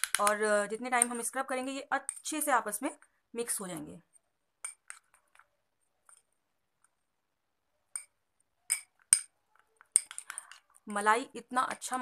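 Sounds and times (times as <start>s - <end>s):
spoon clinking glass bowl: 4.6s - 5.1s, 7.9s - 9.3s.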